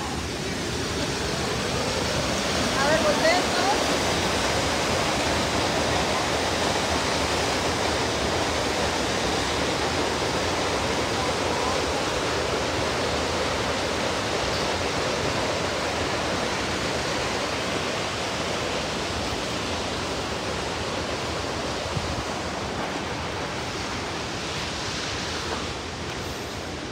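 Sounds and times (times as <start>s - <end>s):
waterfall rushing: 0.0s - 26.9s.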